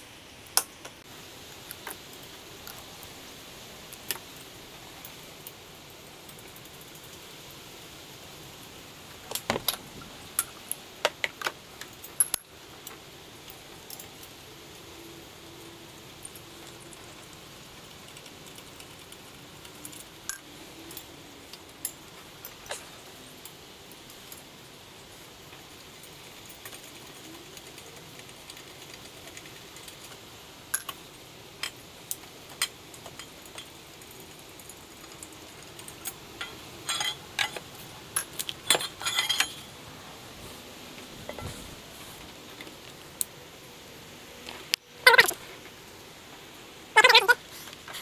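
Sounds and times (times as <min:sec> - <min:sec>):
metal tools clinking and tapping: 0:35.8 - 0:39.7.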